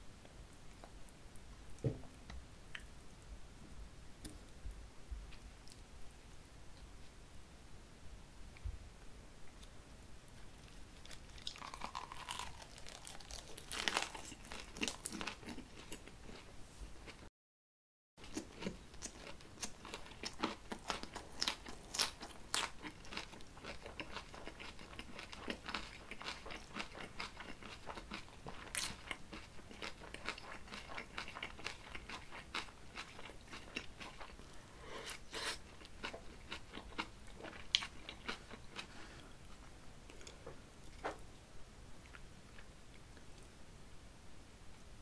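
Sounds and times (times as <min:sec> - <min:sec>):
person chewing crunchy food: 0:10.6 - 0:17.2, 0:18.2 - 0:39.2.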